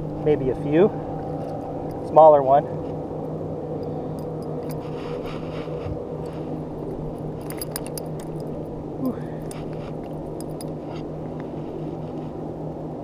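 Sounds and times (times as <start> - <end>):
boat motor humming: 0.0 - 12.9
light clicks and rattles: 3.8 - 5.5, 6.2 - 11.5.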